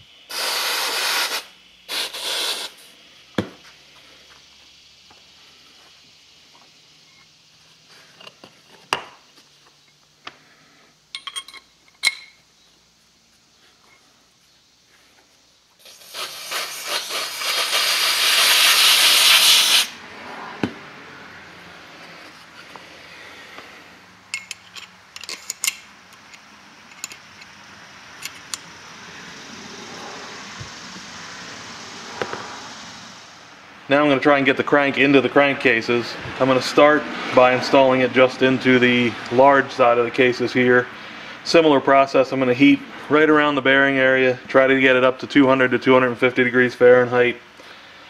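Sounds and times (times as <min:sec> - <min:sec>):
metal bearing clinking on shaft: 0:11.1 - 0:12.4, 0:24.3 - 0:27.5.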